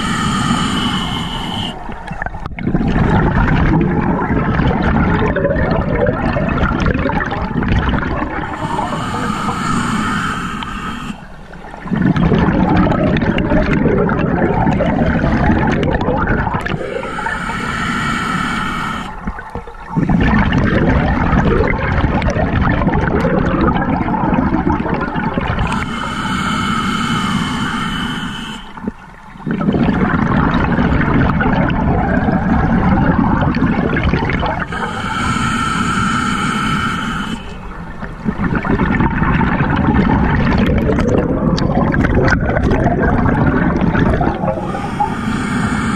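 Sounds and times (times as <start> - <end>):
regulator hissing inhalations: 0.0 - 2.0, 8.3 - 11.6, 16.6 - 19.5, 25.6 - 29.0, 34.5 - 37.8, 44.2 - 45.9
rumble of exhaled bubbles: 0.0 - 26.3, 26.9 - 45.9.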